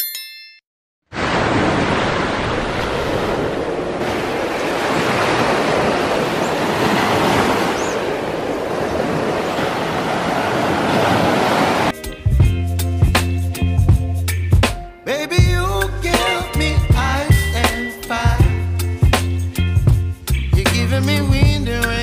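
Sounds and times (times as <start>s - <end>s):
waves breaking on a beach: 1.1s - 12.0s.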